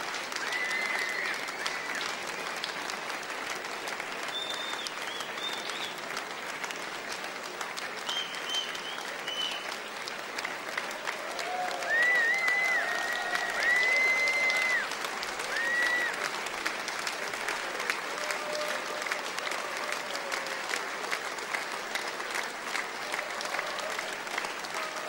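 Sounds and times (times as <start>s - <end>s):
audience applauding: 0.0s - 25.0s
crowd whistles: 0.4s - 1.8s, 4.3s - 6.0s, 8.0s - 9.8s, 11.5s - 16.2s.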